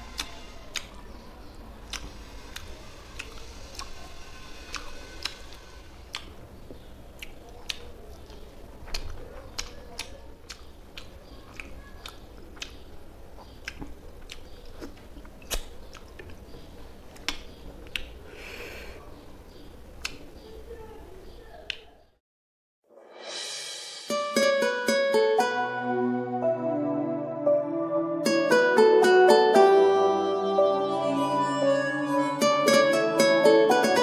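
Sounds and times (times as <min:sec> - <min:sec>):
fingers mixing wet food: 0:04.7 - 0:16.5.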